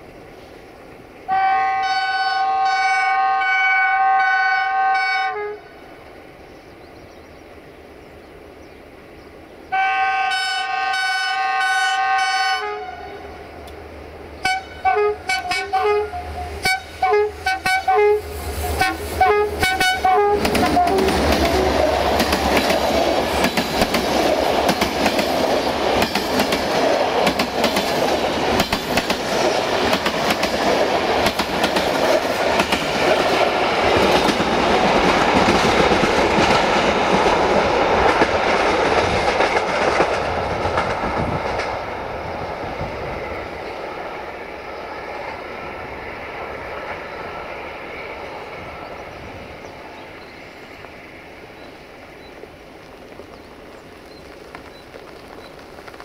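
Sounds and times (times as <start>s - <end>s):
train horn blasts: 1.3s - 5.8s, 9.7s - 13.3s, 14.4s - 21.8s
train engine rumble: 5.7s - 56.0s
wheels clattering on rails: 19.6s - 42.0s.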